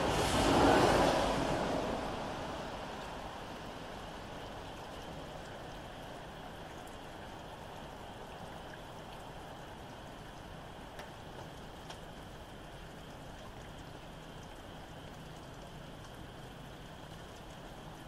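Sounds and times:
steady rain falling: 0:00.0 - 0:18.0
drips ticking: 0:03.8 - 0:18.0.

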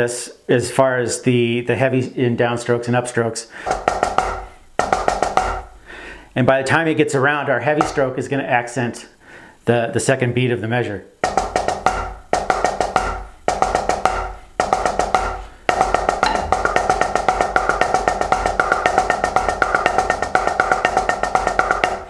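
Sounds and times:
drumsticks on rubber practice pad: 0:03.7 - 0:05.7, 0:11.2 - 0:22.0.

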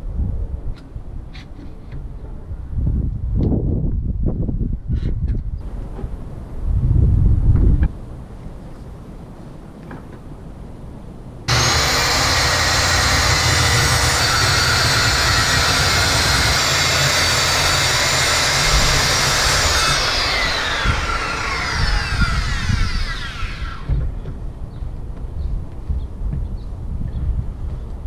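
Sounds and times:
saw blade winding down: 0:11.5 - 0:24.0
circular saw cutting wood: 0:11.5 - 0:24.1.

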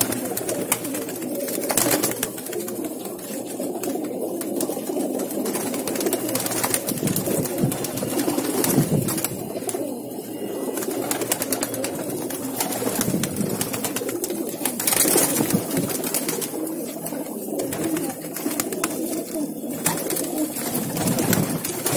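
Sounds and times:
pigeons cooing: 0:00.0 - 0:21.9
wings flapping: 0:00.0 - 0:21.9.

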